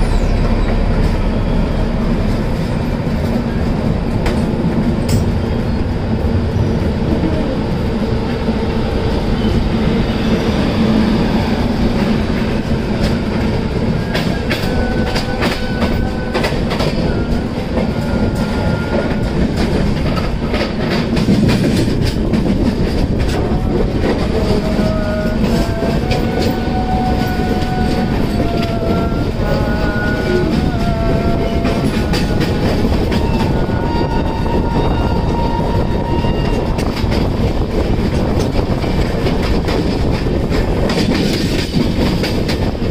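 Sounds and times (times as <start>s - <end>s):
train rumbling: 0.0s - 42.9s
wind noise: 0.0s - 42.9s
wheels clicking over rail joints: 12.0s - 34.1s, 36.3s - 42.9s.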